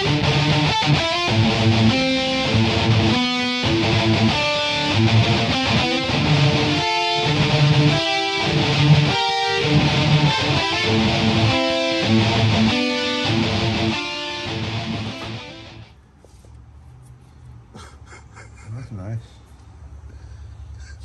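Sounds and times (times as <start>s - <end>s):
guitar chords: 0.0s - 15.9s.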